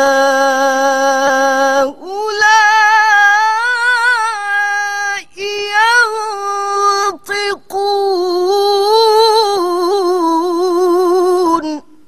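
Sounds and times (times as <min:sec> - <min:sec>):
woman reciting melodically: 0:00.0 - 0:12.0.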